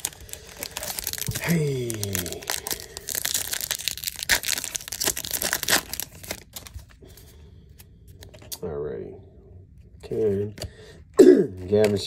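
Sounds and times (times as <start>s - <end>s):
foil wrapper crackling: 0.0s - 6.9s.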